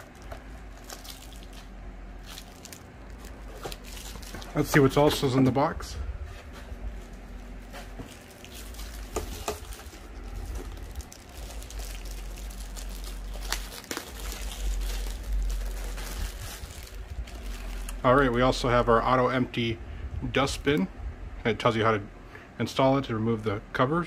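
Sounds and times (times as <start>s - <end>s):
plastic wrapping crinkling: 0.0s - 5.4s, 6.7s - 18.7s
cardboard packaging rustling: 0.0s - 5.7s, 6.3s - 18.6s.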